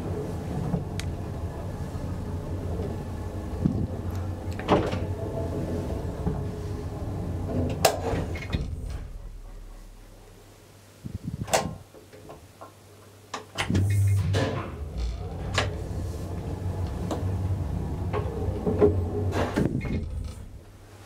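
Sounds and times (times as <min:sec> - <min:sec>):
elevator clanks: 0:00.0 - 0:09.8, 0:13.6 - 0:20.8
elevator motor hum: 0:00.0 - 0:10.2, 0:13.7 - 0:21.0.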